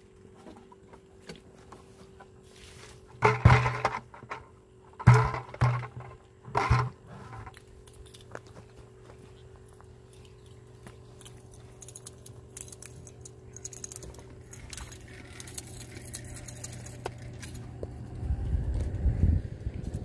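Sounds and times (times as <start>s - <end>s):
low rumble: 14.6s - 20.0s.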